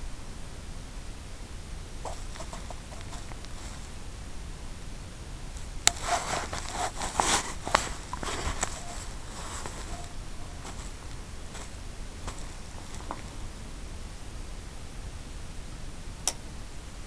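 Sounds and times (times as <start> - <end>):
steady low hiss: 0.0 - 17.0
rustling: 2.0 - 4.4, 5.4 - 14.0
sharp clicks: 16.2 - 16.4.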